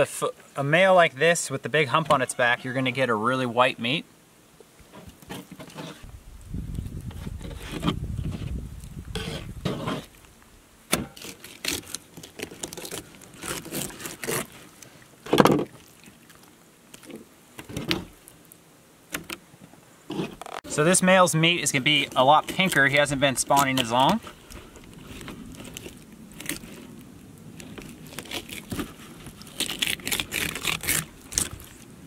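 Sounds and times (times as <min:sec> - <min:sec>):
knife scraping cutting board: 0:05.3 - 0:06.1, 0:09.1 - 0:10.1.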